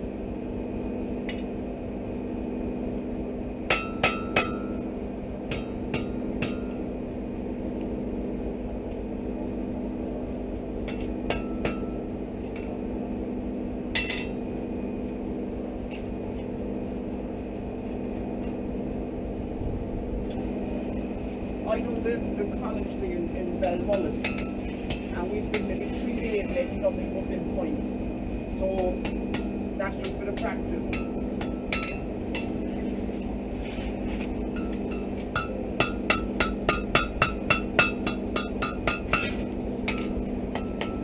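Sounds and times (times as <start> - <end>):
steady low hum: 0.0 - 41.0
hammer striking iron on anvil: 3.7 - 7.0, 10.8 - 12.7, 13.9 - 14.6, 23.6 - 26.0, 28.8 - 32.7, 34.6 - 41.0.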